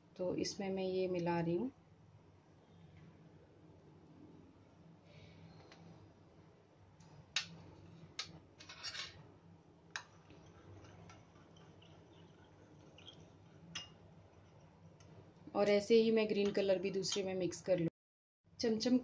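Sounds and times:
spoon clicking against glass bowls: 13.8 - 14.0.

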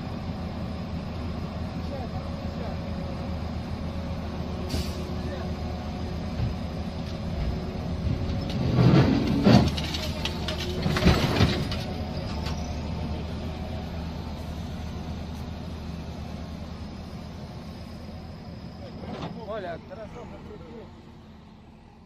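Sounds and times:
excavator diesel engine running: 0.0 - 22.0
truck banging and thudding: 4.6 - 13.4, 18.8 - 20.8
truck crash: 7.2 - 12.9, 18.8 - 20.8.

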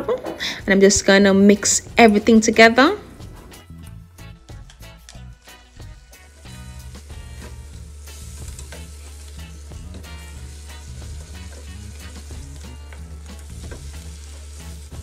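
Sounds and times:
crab sizzling in oil: 5.4 - 15.0.

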